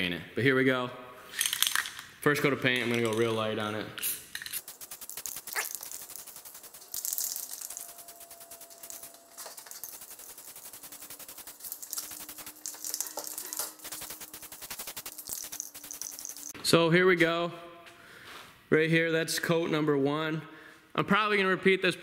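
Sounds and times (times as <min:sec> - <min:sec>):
spray paint can hissing: 0:04.0 - 0:16.6.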